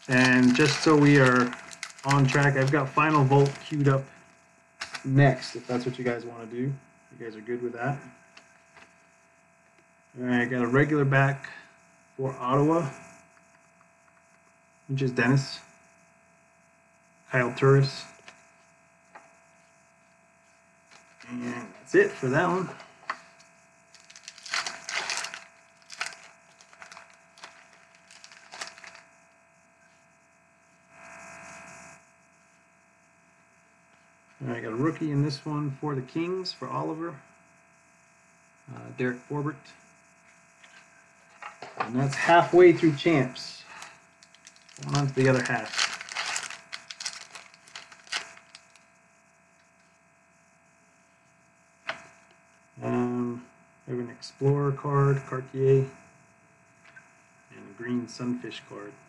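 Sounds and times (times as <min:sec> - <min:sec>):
wrapper tearing and rustling: 0:00.0 - 0:03.8, 0:04.8 - 0:05.1, 0:23.9 - 0:29.0, 0:43.7 - 0:48.8
cards rustling: 0:00.0 - 0:04.0, 0:04.8 - 0:06.0, 0:24.0 - 0:29.0, 0:43.7 - 0:48.8
faint steady hum: 0:00.0 - 0:59.0.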